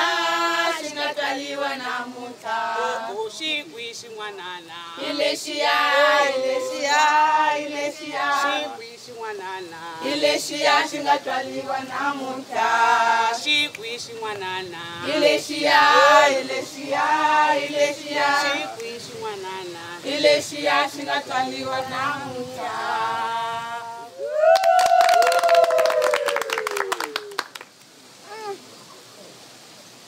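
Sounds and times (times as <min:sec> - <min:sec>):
group of women singing: 0:00.0 - 0:04.0, 0:04.6 - 0:24.1
rapid hand clapping: 0:24.8 - 0:27.8.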